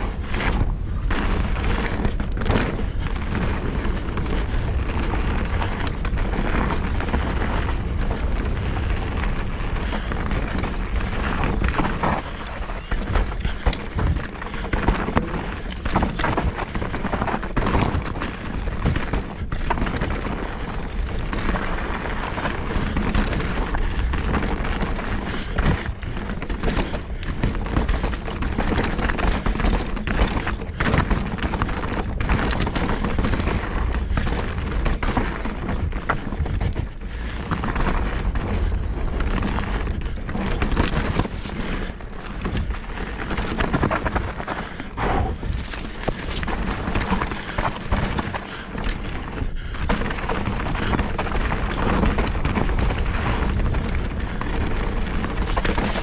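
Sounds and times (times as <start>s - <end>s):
bike knocking and rattling: 0.0s - 56.0s
bike tyres rolling over dirt: 0.0s - 56.0s
wind on microphone: 32.1s - 56.0s.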